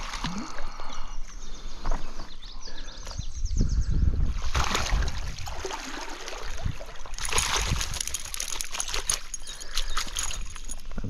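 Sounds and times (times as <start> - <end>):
stream water running and splashing: 0.0 - 1.0, 4.4 - 10.8.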